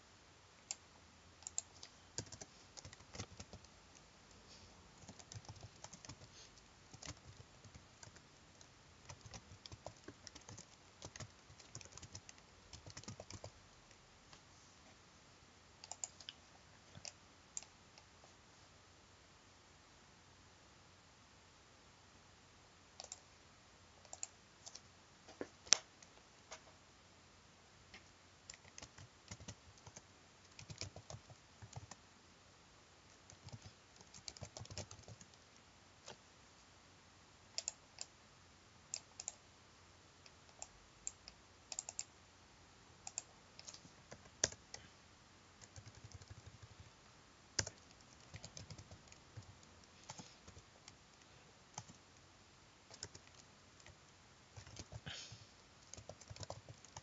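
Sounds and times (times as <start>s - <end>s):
faint computer keyboard typing: 0.6s - 0.8s, 1.4s - 14.0s, 15.8s - 18.1s, 22.9s - 23.3s, 24.0s - 26.7s, 27.9s - 32.0s, 33.1s - 36.2s, 37.5s - 38.2s, 38.9s - 39.5s, 40.2s - 42.2s, 43.0s - 44.9s, 45.6s - 57.0s.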